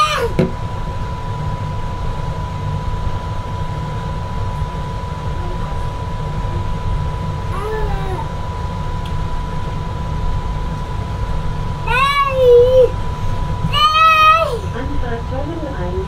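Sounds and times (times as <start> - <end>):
high whine: 0.0 - 16.0
train rumbling on guideway: 11.0 - 16.0.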